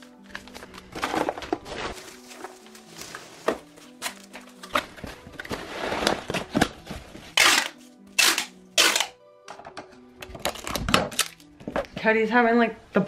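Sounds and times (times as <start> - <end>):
soft background music: 0.0 - 13.0
packing tape ripping off roll: 0.3 - 9.2, 10.4 - 11.5.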